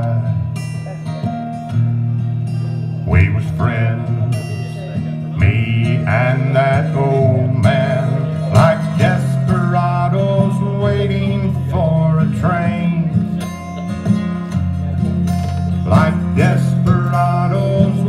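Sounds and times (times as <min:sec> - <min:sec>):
acoustic guitars playing country song: 0:00.0 - 0:18.0.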